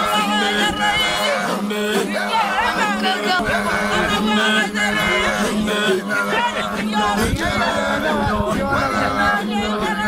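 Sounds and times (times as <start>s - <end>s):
men singing a cappella: 0.0s - 10.0s.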